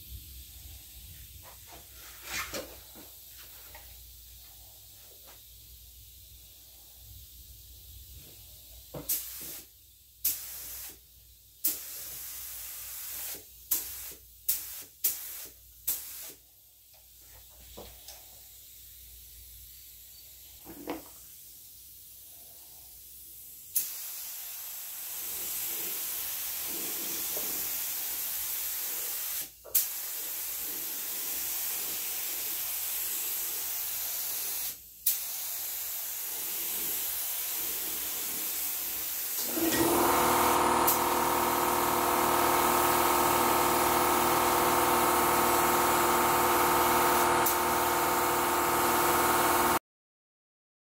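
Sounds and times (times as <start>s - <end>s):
paint spray gun hissing: 9.0s - 11.0s, 11.6s - 16.4s, 23.6s - 49.8s.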